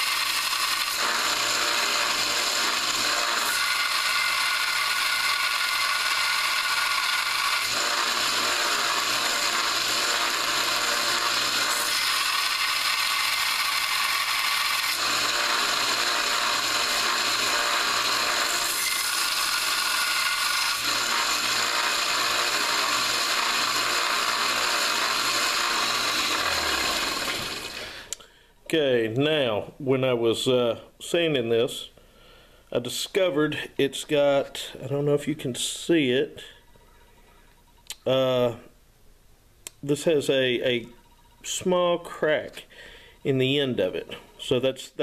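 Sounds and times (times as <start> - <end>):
steel grinding on sanding belt: 0.0 - 28.1
belt sander motor hum: 0.0 - 28.2.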